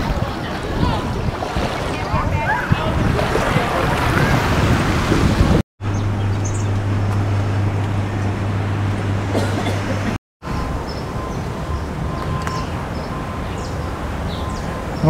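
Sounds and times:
outdoor noise: 0.0s - 15.0s
steady low hum: 5.8s - 15.0s.

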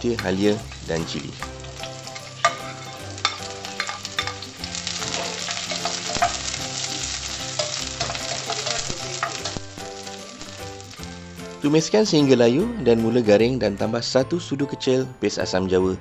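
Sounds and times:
vegetables sizzling in hot oil: 0.0s - 12.2s.

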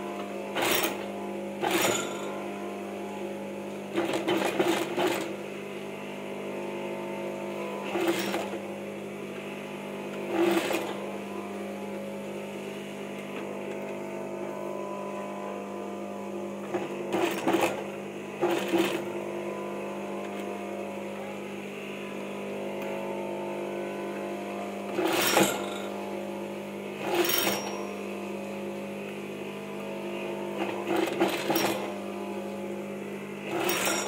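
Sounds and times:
sewing machine stitching: 0.5s - 2.3s, 3.9s - 5.4s, 7.8s - 8.6s, 10.3s - 11.0s, 16.6s - 19.1s, 24.9s - 26.0s, 27.0s - 27.8s, 30.6s - 32.0s, 33.5s - 34.0s
steady hum: 11.0s - 26.9s.

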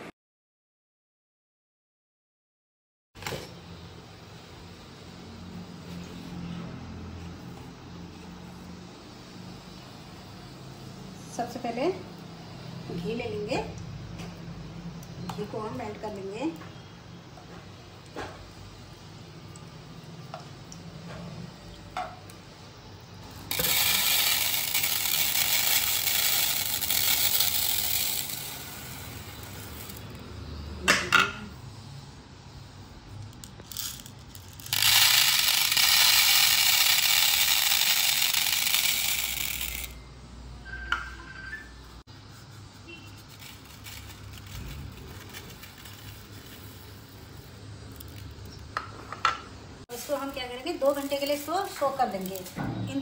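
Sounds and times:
grains pouring onto a plate: 23.5s - 30.1s, 33.6s - 39.9s
seeds pattering on a plate: 23.5s - 30.1s, 43.1s - 48.7s, 49.9s - 52.6s.

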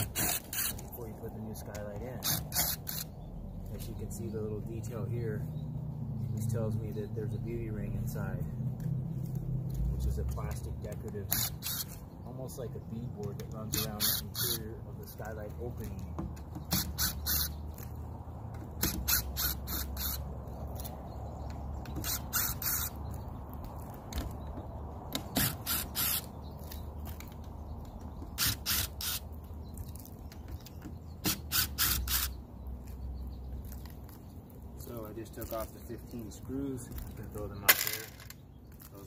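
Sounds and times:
cordless drill bursts: 11.4s - 11.9s, 16.7s - 17.6s, 18.8s - 20.2s, 25.4s - 26.3s, 28.4s - 29.2s, 31.3s - 32.4s.

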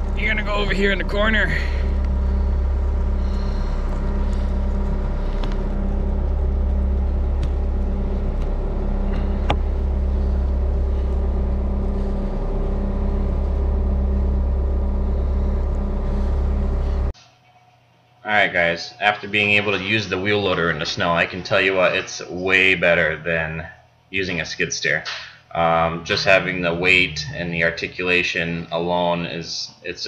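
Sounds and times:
diesel engine humming: 0.0s - 17.2s, 25.6s - 27.9s.

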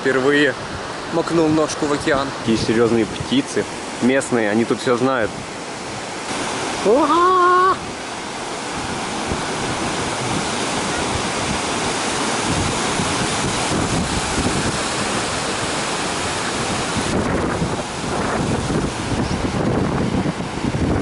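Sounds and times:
ocean surf breaking on beach: 0.0s - 21.0s
wind buffeting microphone: 5.2s - 21.0s.

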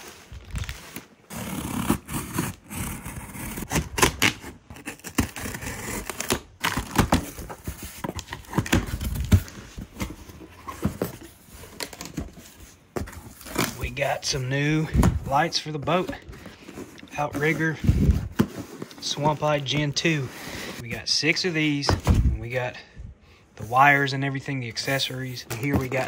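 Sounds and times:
plastic crinkling and tearing: 0.0s - 1.3s.

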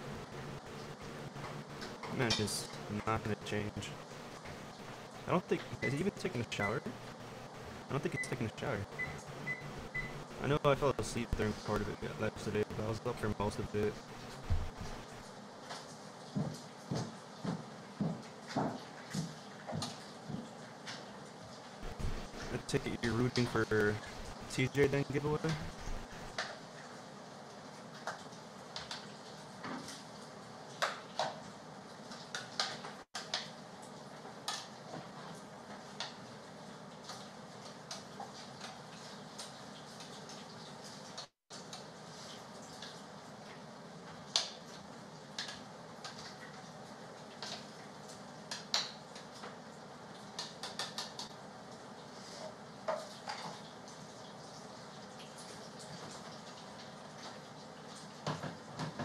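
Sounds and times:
low room hum: 0.0s - 17.1s, 21.8s - 26.4s.

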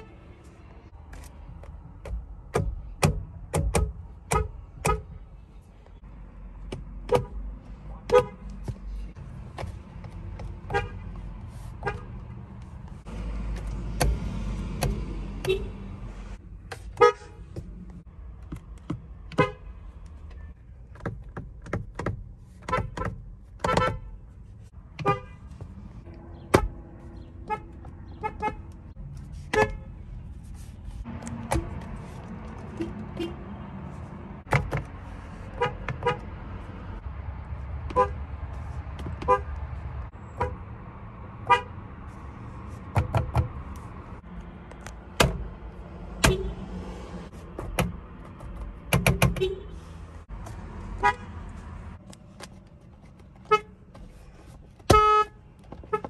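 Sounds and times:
car horn short toots: 54.9s - 56.0s.

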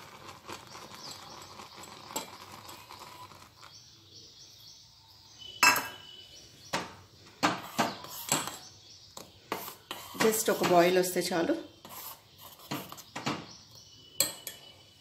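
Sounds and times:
spoon clinking against saucepan: 5.6s - 6.0s, 14.2s - 14.8s.

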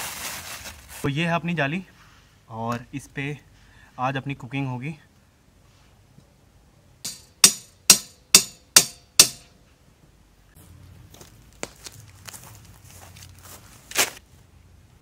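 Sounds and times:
footsteps on pine needles: 0.0s - 1.1s, 10.6s - 14.3s
hammer striking metal stake: 7.0s - 9.6s.

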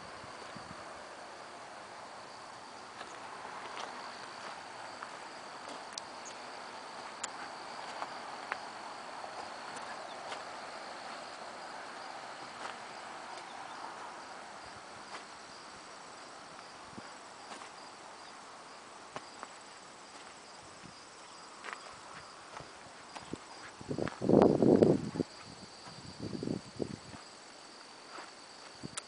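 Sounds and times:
high-pitched insect trill: 0.0s - 29.0s
footsteps on gravel: 2.9s - 14.2s, 15.0s - 15.4s, 17.4s - 17.9s, 19.2s - 24.3s.

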